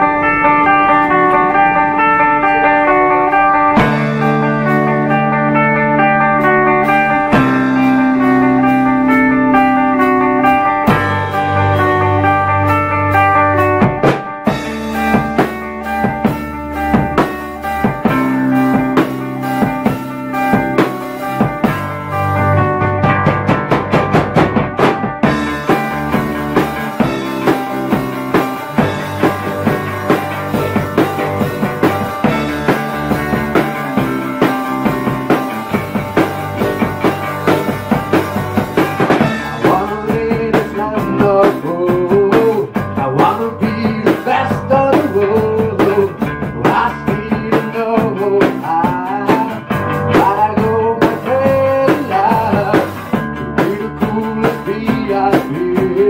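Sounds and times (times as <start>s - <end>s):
rock band playing live: 0.0s - 56.0s
male lead vocal: 39.4s - 56.0s.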